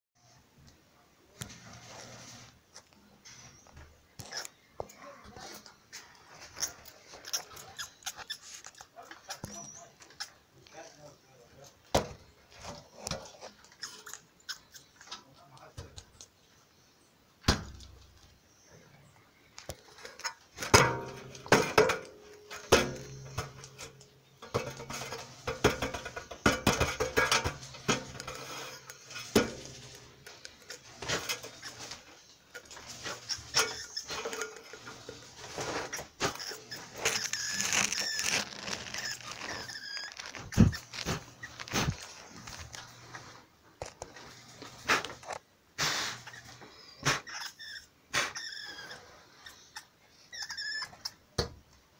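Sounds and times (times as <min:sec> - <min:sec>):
high squeaking: 0:06.4 - 0:10.4, 0:21.0 - 0:42.9.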